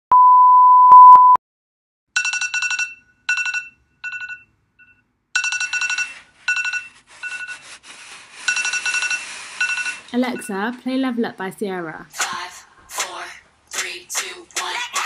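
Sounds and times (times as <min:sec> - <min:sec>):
test-tone beep: 0:00.1 - 0:01.4
phone alarm ringtone: 0:02.2 - 0:07.7, 0:08.4 - 0:10.5.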